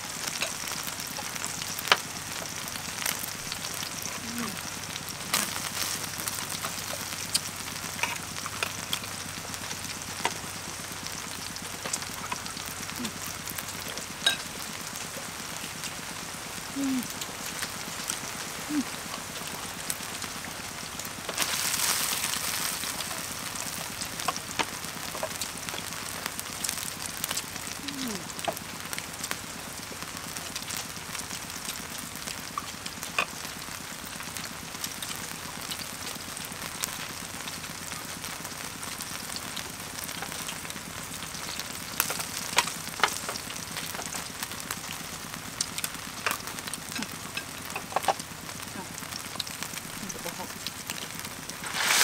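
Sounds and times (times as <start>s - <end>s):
meat sizzling in a wok: 0.0s - 52.0s.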